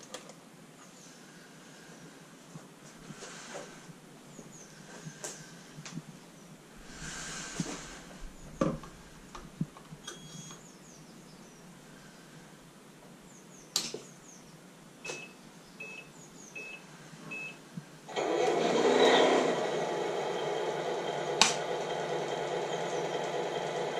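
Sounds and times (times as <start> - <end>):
steady rushing noise: 4.8 - 9.8
sharp clicks: 13.7 - 14.0.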